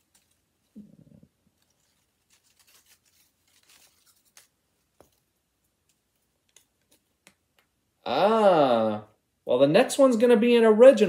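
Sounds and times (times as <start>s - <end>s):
paper rustling and crinkling: 0.0s - 7.2s.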